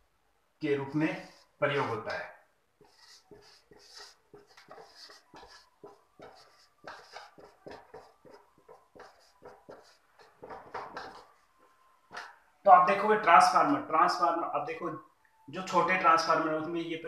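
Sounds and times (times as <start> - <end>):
marker pen scratching on whiteboard: 0.9 - 12.4
marker squeaks: 2.8 - 11.5.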